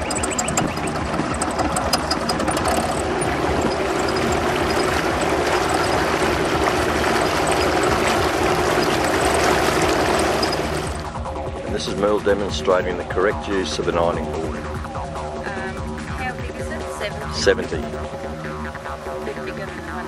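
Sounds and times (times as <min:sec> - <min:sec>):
outboard motor running: 0:00.0 - 0:20.0.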